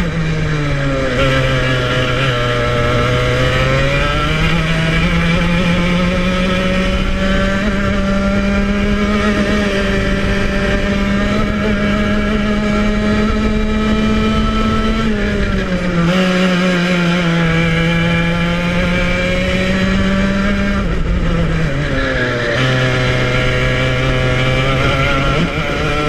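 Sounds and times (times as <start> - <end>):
two-stroke kart engine running hard: 0.0 - 26.0.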